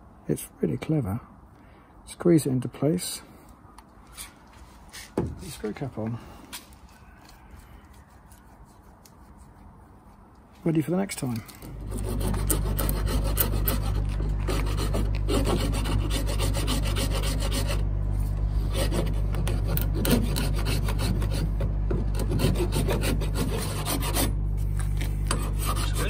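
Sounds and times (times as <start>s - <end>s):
steady low hum: 0.0s - 26.0s
hand file rasping on filler: 11.8s - 17.8s, 18.6s - 24.3s, 25.3s - 26.0s.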